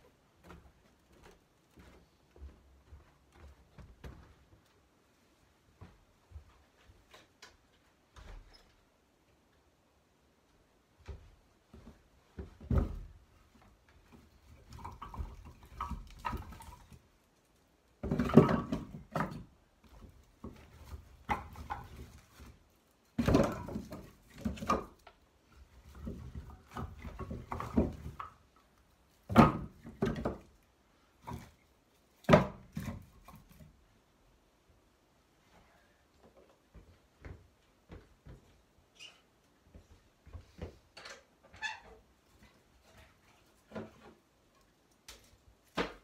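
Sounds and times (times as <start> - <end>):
logs knocking on wooden box: 18.0 - 19.5.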